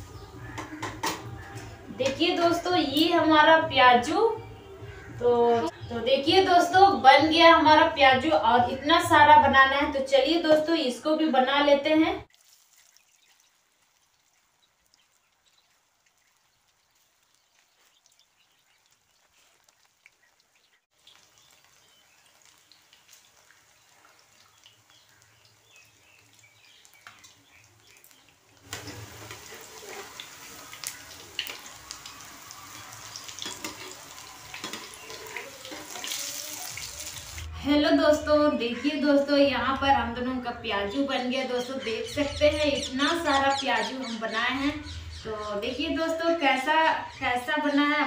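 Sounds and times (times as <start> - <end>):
deep-frying crackling sizzle: 12.2 - 37.6.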